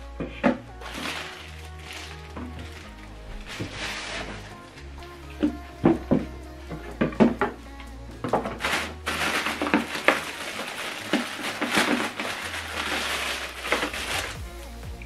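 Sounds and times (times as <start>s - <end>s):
plastic bags crinkling: 0.8s - 4.8s, 8.5s - 14.4s.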